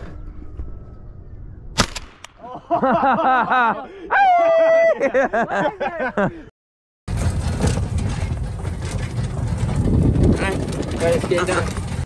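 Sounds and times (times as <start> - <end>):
shotgun shot: 1.8 - 2.4
people laughing: 2.4 - 6.5
long whoop: 4.1 - 5.0.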